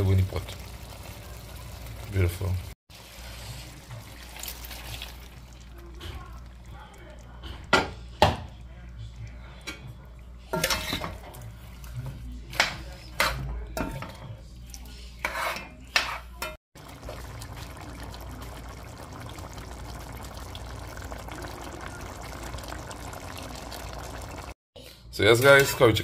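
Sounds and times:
spoon stirring and scraping pot: 9.3 - 16.6
sauce simmering with bubbling hiss: 16.8 - 24.6.

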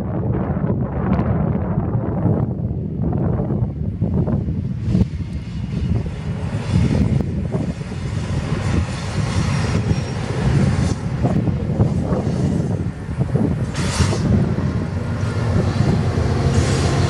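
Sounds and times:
locomotive engine rumble: 0.1 - 17.0
broad hiss: 13.6 - 17.0.

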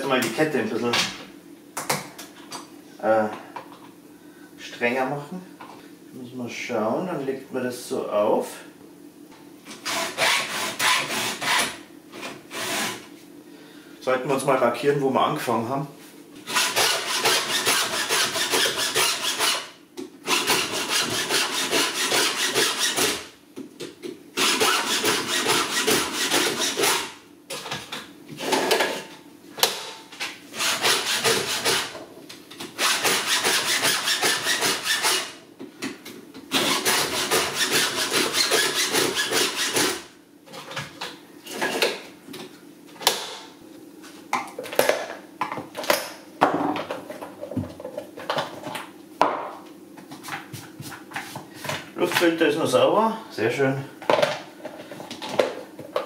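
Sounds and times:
file rasping on chainsaw chain: 16.5 - 19.6, 32.8 - 35.3, 36.7 - 39.9.

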